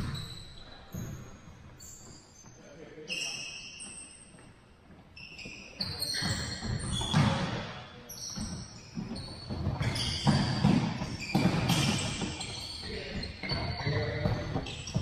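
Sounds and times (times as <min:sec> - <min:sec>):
sneaker squeaks: 0:00.0 - 0:15.0
ball bouncing on wooden floor: 0:08.3 - 0:15.0.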